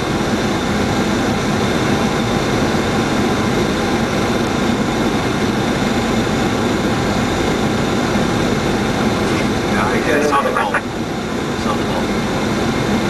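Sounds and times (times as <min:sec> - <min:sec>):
engine and air-conditioning hum: 0:07.7 - 0:13.0.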